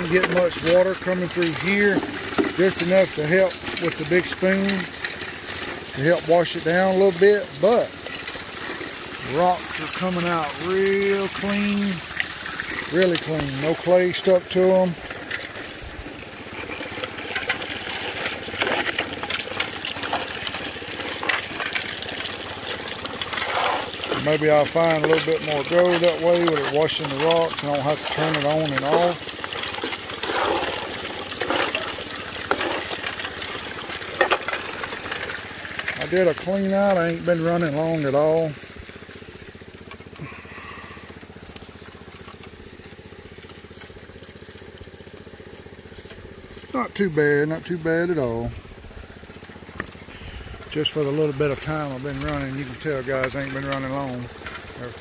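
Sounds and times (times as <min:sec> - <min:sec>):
water splashing: 0:00.0 - 0:37.2
rocks clattering in spinning drum: 0:00.0 - 0:55.0
small engine running: 0:00.0 - 0:55.0.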